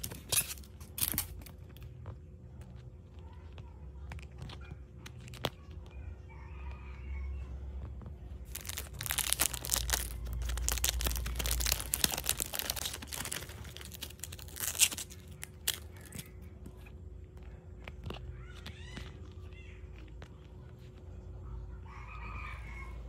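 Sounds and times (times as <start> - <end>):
plastic bag crinkling: 8.4 - 16.5.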